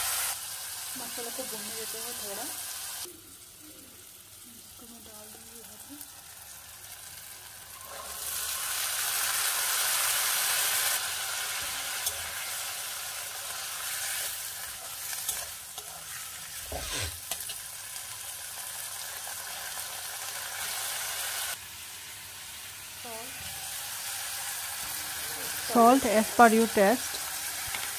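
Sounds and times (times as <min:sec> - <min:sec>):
chickpeas sizzling in hot oil: 0:00.0 - 0:27.9.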